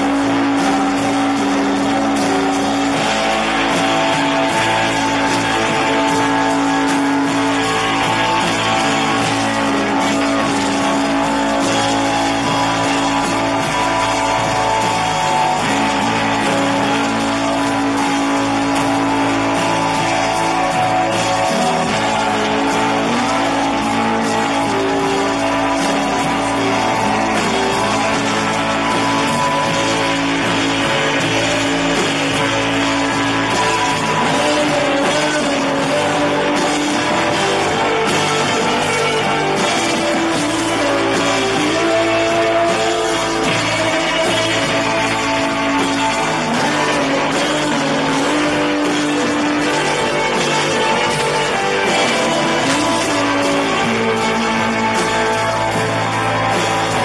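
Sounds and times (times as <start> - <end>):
bass guitar: 0.0 - 57.0
drums: 0.0 - 57.0
electric guitars sustained chords: 0.0 - 57.0.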